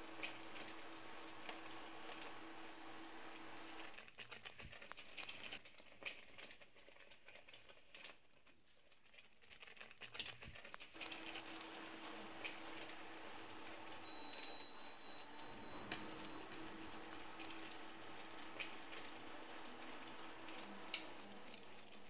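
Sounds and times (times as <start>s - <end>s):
low hum: 11.0s - 22.0s.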